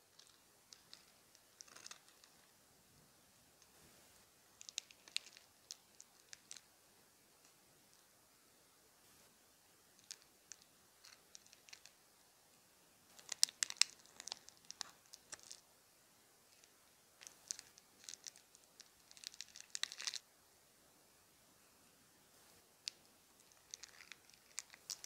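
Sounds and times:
plastic bags crinkling: 22.8 - 25.0.

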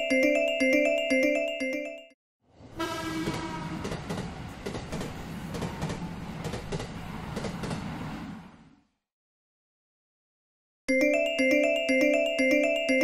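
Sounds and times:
train horn blast: 2.7 - 3.9.

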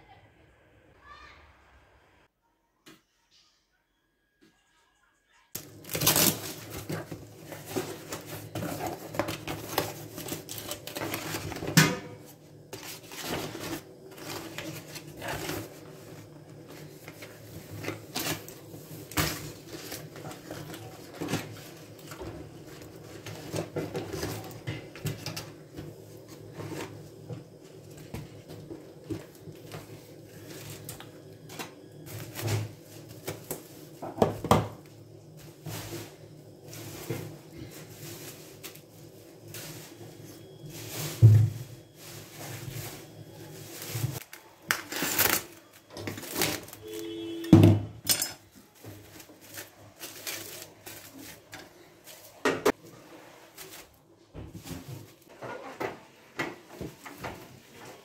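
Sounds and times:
knocks and taps on countertop: 34.0 - 34.8.

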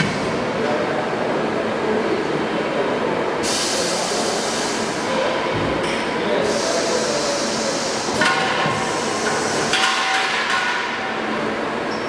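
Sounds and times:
loud hiss with steady tones: 6.4 - 10.0.

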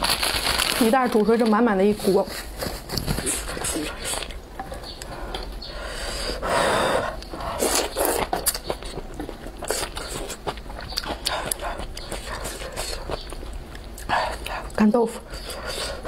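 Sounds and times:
chewing: 7.1 - 16.0.

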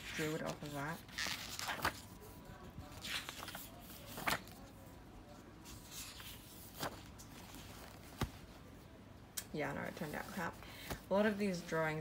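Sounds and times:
paper pages rustling: 0.0 - 4.7, 5.6 - 8.6.

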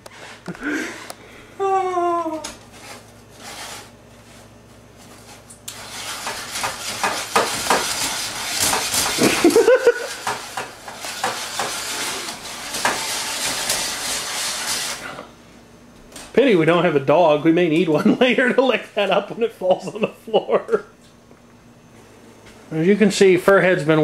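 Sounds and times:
whisk scraping bowl: 2.7 - 4.0, 5.0 - 15.3.

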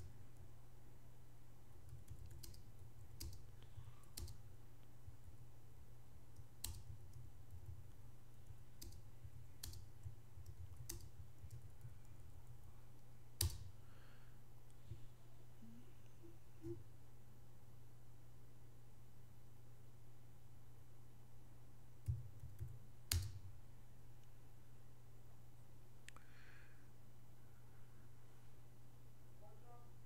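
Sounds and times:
steady low hum: 0.0 - 30.0
keyboard keys clicking: 1.8 - 3.5, 4.1 - 4.4, 6.4 - 12.6.

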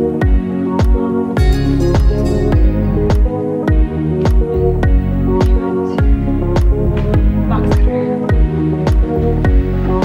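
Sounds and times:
electronic music with kick drum: 0.0 - 10.0.

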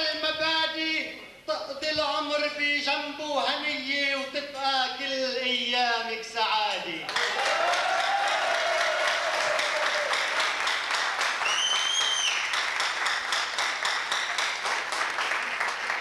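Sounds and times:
audience applauding: 7.1 - 16.0
drawn-out shout from audience: 7.2 - 10.3
whistle from crowd: 11.4 - 12.5.

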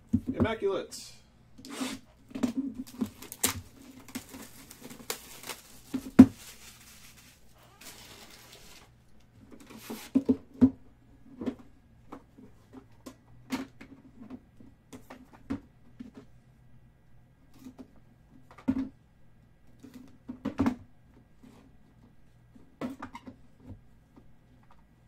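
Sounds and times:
packaging taps and knocks: 2.4 - 6.6.

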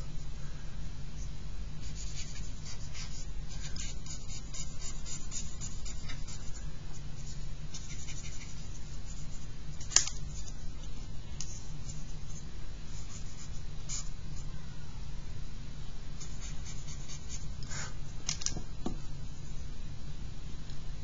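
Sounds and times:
steady low hum: 0.0 - 21.0
pencil scratching on paper: 1.8 - 6.6, 7.2 - 9.5, 16.2 - 17.8.

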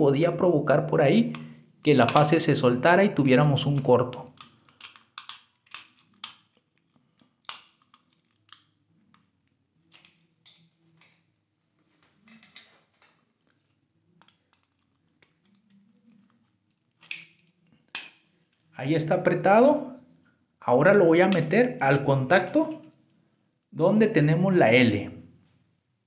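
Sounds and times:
screwdriver clicks and scrapes: 4.4 - 6.7, 14.2 - 18.6.

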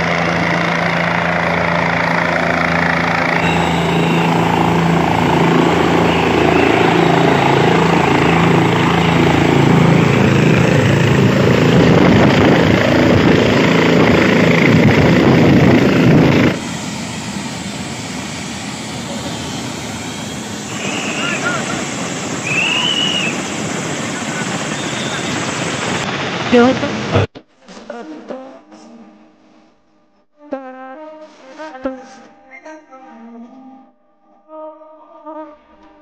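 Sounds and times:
helicopter engine and rotor: 0.0 - 27.2.

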